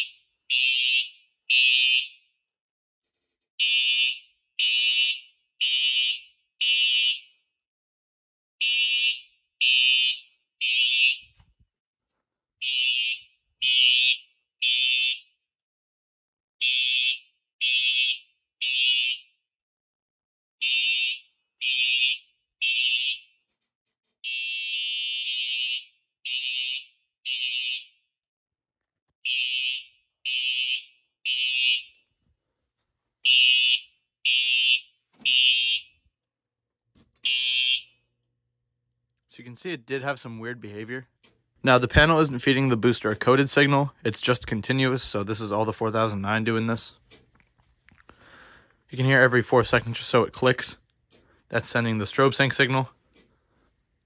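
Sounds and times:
fire alarm horn blasts: 0.0s - 2.3s, 3.6s - 7.4s, 8.6s - 11.4s, 12.6s - 15.3s, 16.6s - 19.3s, 20.6s - 23.4s, 24.2s - 28.0s, 29.2s - 32.0s, 33.2s - 36.0s, 37.2s - 38.0s.

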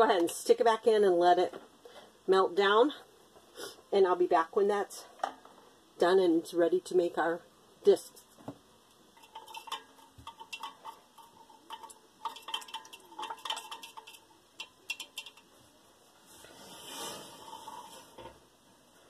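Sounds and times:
stick tapping metal can: 9.2s - 15.5s.

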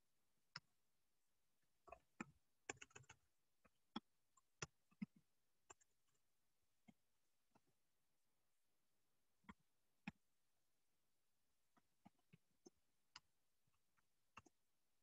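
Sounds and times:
faint clicks and soft knocks: 1.6s - 7.8s, 11.7s - 14.7s.

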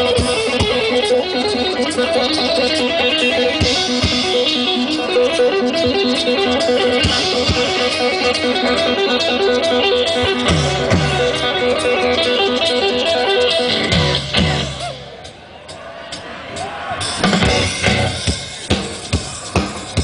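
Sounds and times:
electric guitar riff: 0.0s - 15.3s, 16.5s - 20.0s
live rock band playing: 0.0s - 20.0s.

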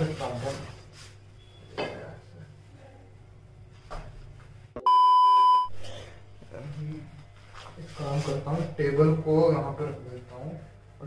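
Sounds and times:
censor bleep: 4.8s - 5.7s.

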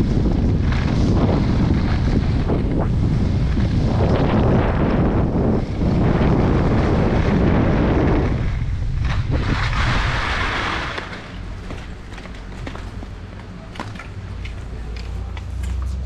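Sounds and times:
skis scraping over matting: 0.0s - 16.0s
wind buffeting microphone: 0.0s - 16.0s
skis hissing over snow: 0.1s - 11.9s.

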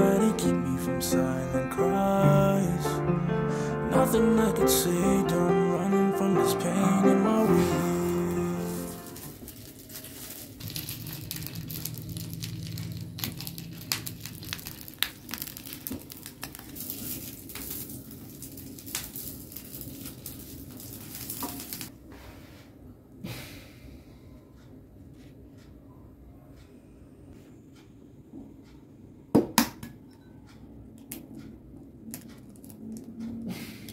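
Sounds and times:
sausage sizzling in a pan: 13.9s - 21.9s.

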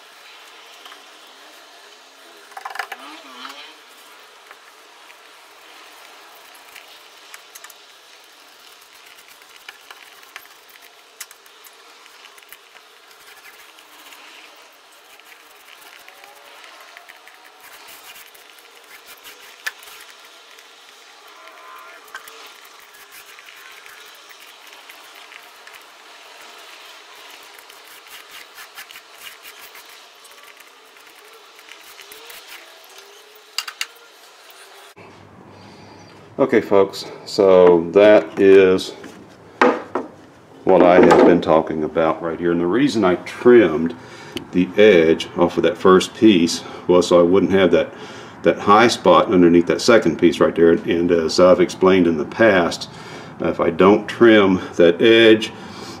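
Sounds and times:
roller working wet epoxy: 0.0s - 35.0s
steady faint hiss: 0.0s - 56.0s.

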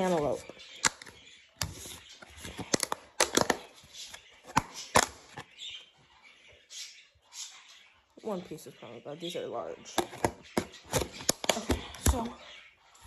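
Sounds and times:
plastic containers and plate knocking: 9.9s - 12.3s.

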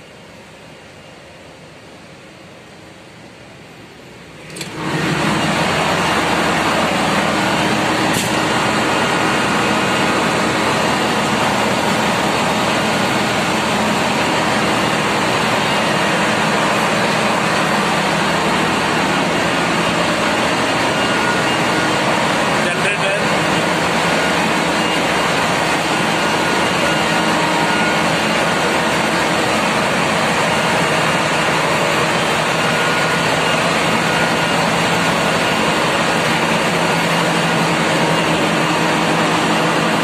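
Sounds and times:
ship engine room diesel engine din: 0.0s - 40.0s.

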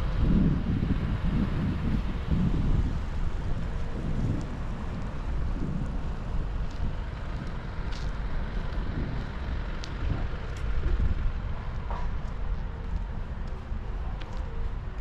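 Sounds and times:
low outdoor rumble: 0.0s - 15.0s
wind buffeting microphone: 0.0s - 15.0s.

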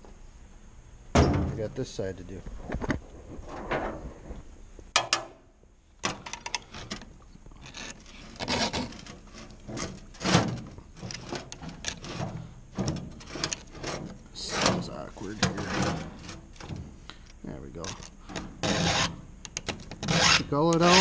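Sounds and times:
file rasping on saw chain: 8.4s - 9.0s, 18.6s - 19.2s, 20.0s - 21.0s.

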